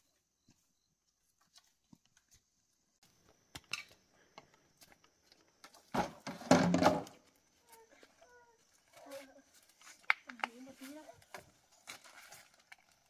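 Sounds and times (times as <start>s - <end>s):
brush rustling: 8.8s - 13.0s.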